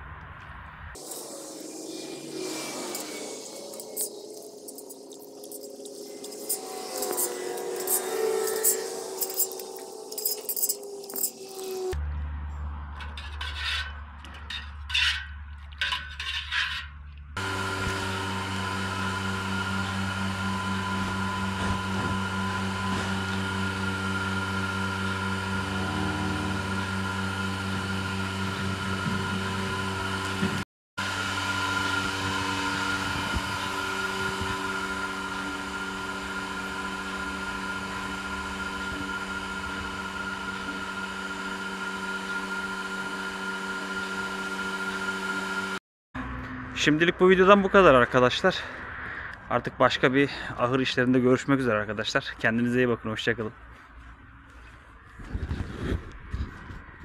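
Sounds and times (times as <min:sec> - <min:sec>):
electric motor running: 0:01.0 - 0:12.0, 0:17.4 - 0:45.8
clinks and knocks: 0:04.7 - 0:11.8, 0:12.9 - 0:17.3.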